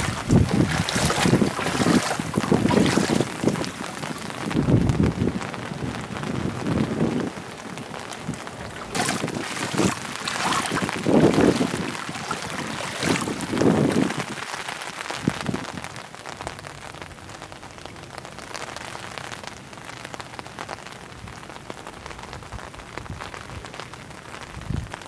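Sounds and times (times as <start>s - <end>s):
low rumbles: 0.0s - 14.2s
rain on standing water: 0.0s - 25.0s.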